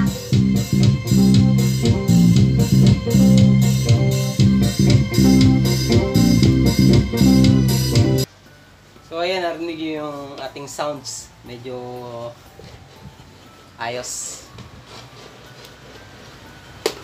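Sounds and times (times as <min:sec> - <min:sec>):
loud music with heavy bass: 0:00.0 - 0:08.3.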